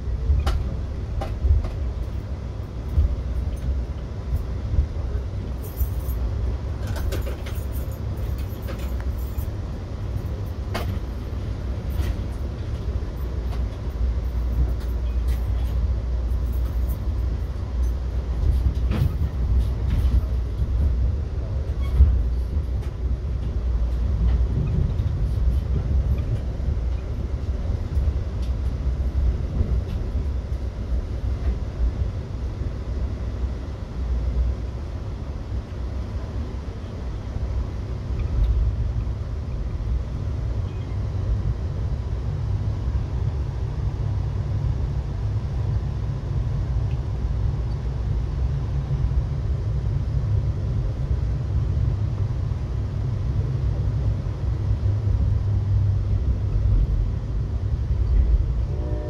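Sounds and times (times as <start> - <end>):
train coach rumbling: 0.0 - 59.0.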